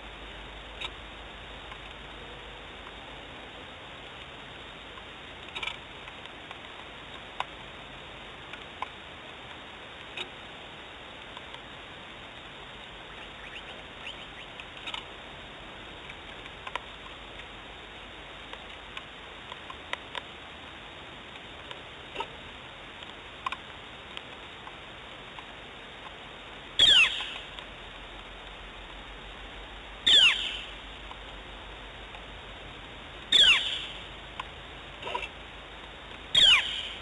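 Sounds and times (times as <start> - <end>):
steady hiss: 0.0 - 37.0
raindrops ticking on camera: 4.0 - 30.0.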